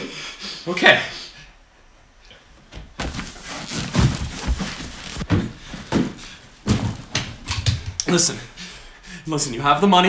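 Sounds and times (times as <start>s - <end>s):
bag rustling: 3.0s - 7.1s
closet door thuds: 3.9s - 8.0s.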